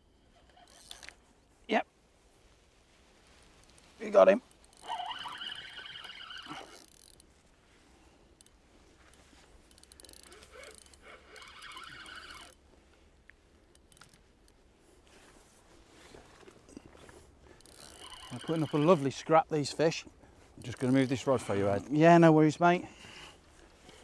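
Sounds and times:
fishing reel whirring: 0.3 - 1.1, 4.6 - 7.2, 9.7 - 12.6, 17.6 - 19.0, 20.6 - 21.2
reel clicks: 0.4 - 1.2, 4.5 - 5.0, 6.0 - 7.3, 8.4 - 12.6, 13.7 - 14.6, 17.6 - 18.6, 20.6 - 21.3.

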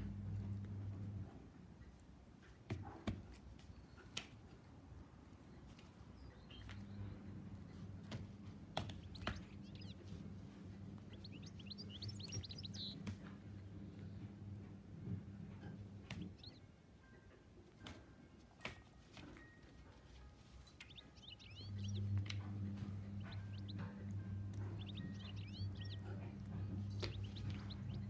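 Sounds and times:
low hum: 0.0 - 1.4, 6.4 - 16.7, 20.6 - 28.0
high chirps: 8.9 - 13.1, 16.1 - 16.6, 20.7 - 28.0.

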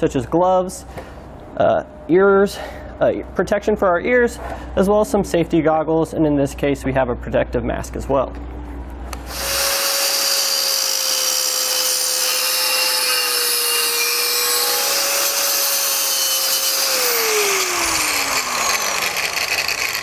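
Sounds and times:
angle grinder cutting metal: 9.2 - 20.0.

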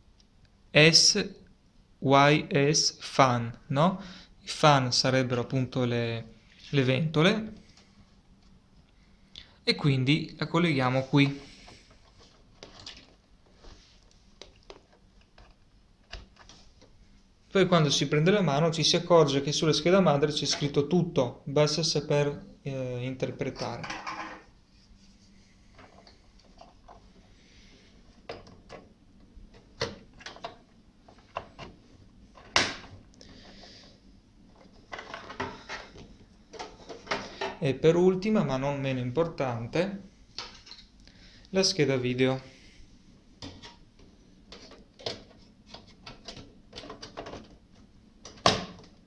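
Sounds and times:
clicks and knocks of plastic and metal: 29.5 - 33.4, 34.5 - 37.6, 43.4 - 49.0.

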